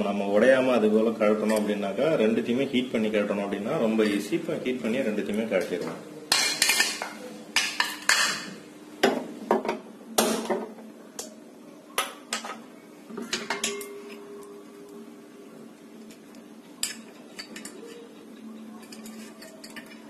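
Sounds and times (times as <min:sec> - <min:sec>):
metal parts clinking on steel grate: 0:18.8 - 0:20.0.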